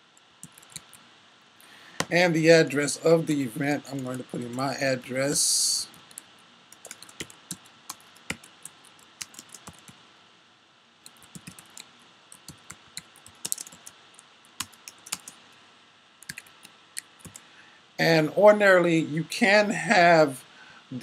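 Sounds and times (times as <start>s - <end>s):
computer keyboard typing: 0.4s - 1.0s, 3.9s - 4.6s, 5.9s - 10.0s, 11.0s - 15.4s, 16.2s - 17.4s.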